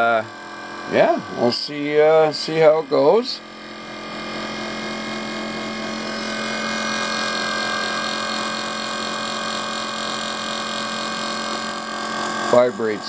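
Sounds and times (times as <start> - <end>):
electric motor whine: 0.0 - 13.0.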